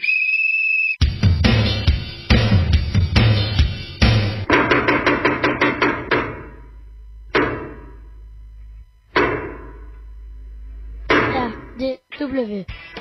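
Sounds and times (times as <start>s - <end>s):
sharp percussive hits: 1.1s - 6.7s, 7.3s - 8.0s, 9.1s - 10.0s, 11.0s - 11.8s
low steady hum: 4.4s - 13.0s.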